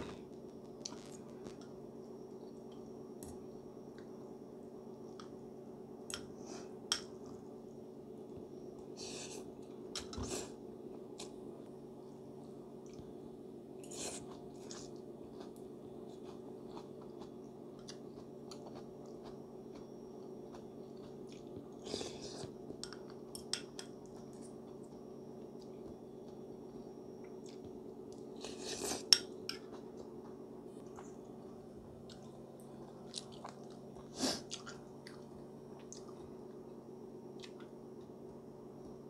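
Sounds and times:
steady low hum: 0.0 - 39.0
person chewing with clicks: 13.8 - 21.8, 27.2 - 36.6, 37.4 - 38.1.

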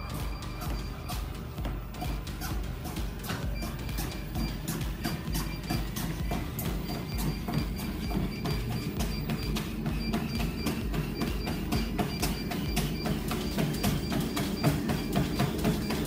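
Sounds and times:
feet pounding treadmill: 0.0 - 16.0
music: 0.0 - 16.0.

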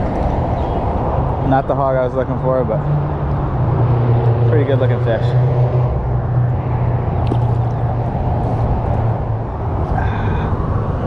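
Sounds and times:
road traffic noise: 0.0 - 11.0.

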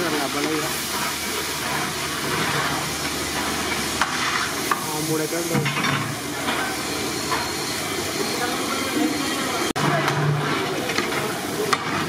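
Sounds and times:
steady hiss: 0.0 - 9.7
metal ladle scraping a pan: 0.8 - 4.8.

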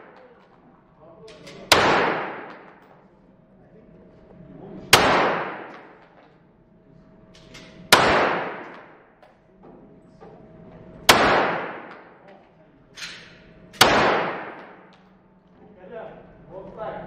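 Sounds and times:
pistol shots with echo: 0.0 - 0.4, 1.4 - 2.8, 4.9 - 6.2, 7.8 - 9.1, 11.1 - 12.2, 13.1 - 15.1.

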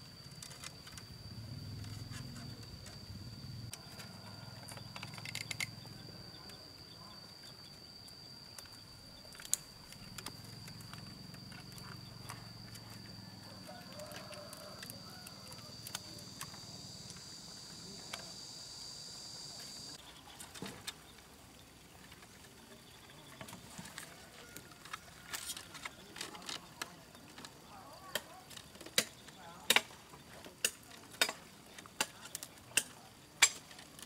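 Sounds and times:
insect buzzing: 0.0 - 30.2
bamboo poles knocking: 28.1 - 33.8.

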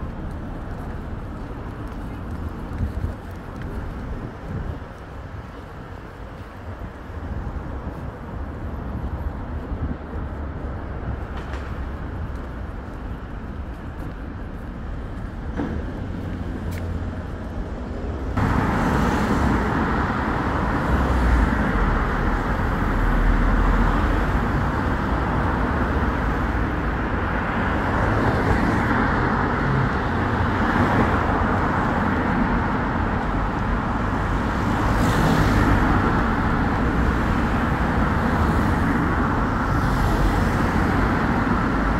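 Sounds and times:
cars driving past: 14.9 - 41.9.

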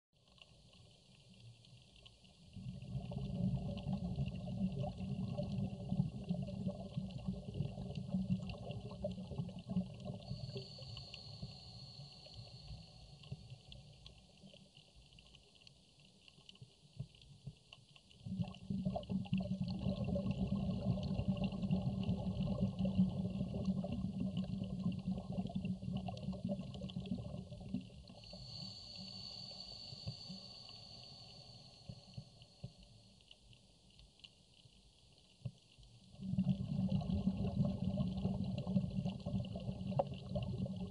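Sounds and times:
fine crackle: 0.2 - 40.9
underwater exhaled bubbles rumbling: 2.4 - 10.8, 18.1 - 28.5, 36.0 - 40.9
thin high whistle: 28.2 - 32.2.

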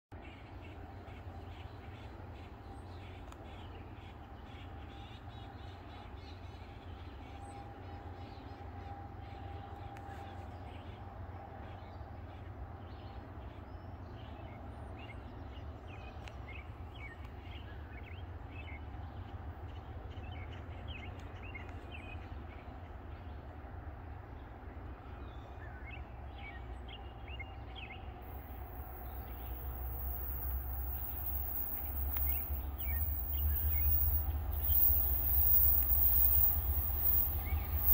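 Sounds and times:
steady low rumble: 28.2 - 37.9
faint held tone: 28.3 - 37.9
birds chirping and calling: 28.4 - 37.9.

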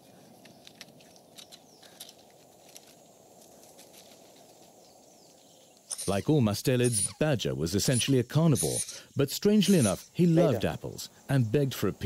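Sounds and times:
outdoor low hiss: 0.0 - 12.0
claws scuffing on bark and leaves: 0.4 - 5.0.

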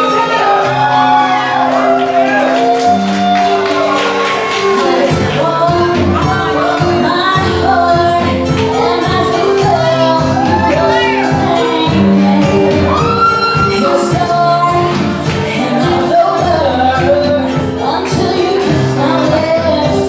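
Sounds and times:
drum kit: 0.0 - 20.0
keyboard: 0.0 - 20.0
woman singing into microphone: 4.3 - 20.0.

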